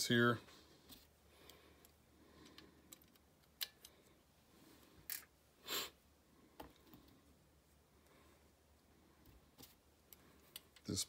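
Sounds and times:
small metal parts clicking: 2.4 - 4.1, 5.0 - 5.3.

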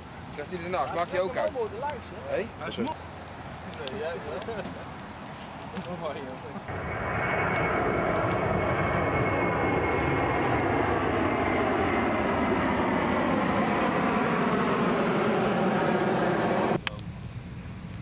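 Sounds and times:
airplane passing overhead: 0.0 - 18.0.

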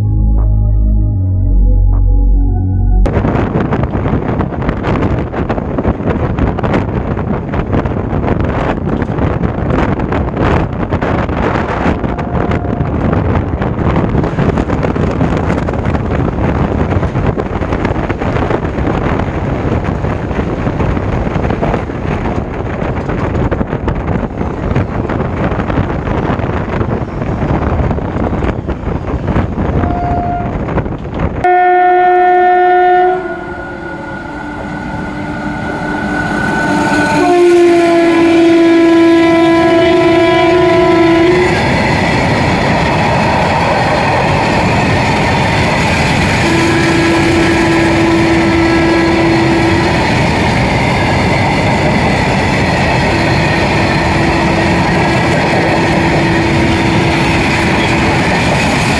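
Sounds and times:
train rumble and wind: 0.0 - 58.9
locomotive horn: 11.8 - 13.2, 29.8 - 30.7, 31.4 - 41.6, 46.4 - 50.0, 53.1 - 57.8.

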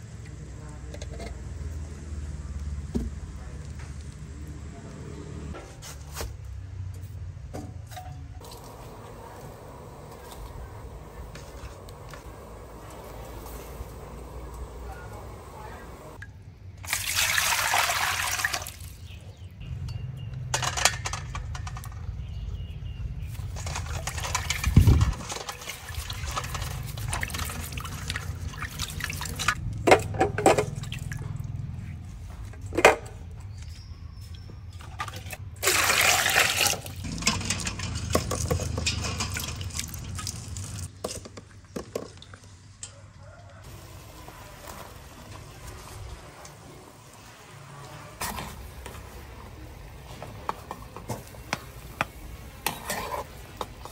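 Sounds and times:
water pouring into steel bowl: 16.8 - 18.9, 23.7 - 29.6, 35.6 - 40.9
water handling sounds: 23.3 - 31.7, 34.3 - 43.0.

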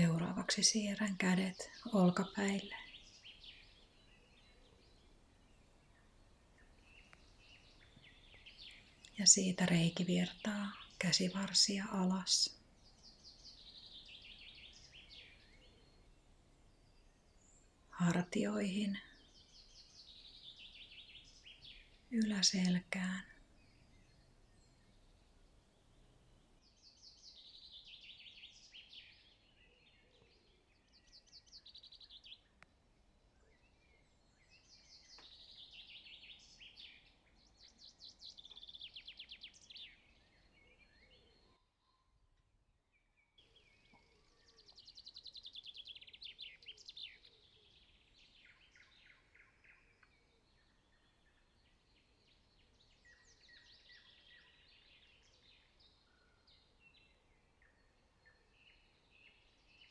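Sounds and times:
soft background hiss: 0.0 - 29.9.

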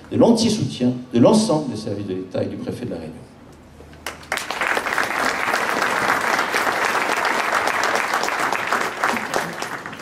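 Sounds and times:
audience applause: 4.0 - 10.0.

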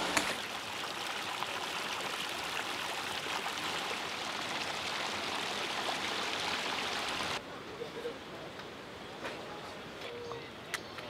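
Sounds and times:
stream trickling over stones: 0.0 - 7.4.

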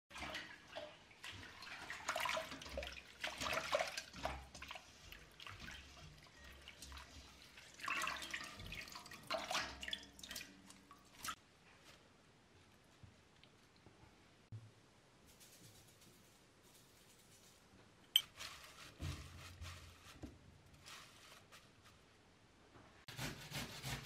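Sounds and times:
water splashing in bowl: 0.1 - 11.4.

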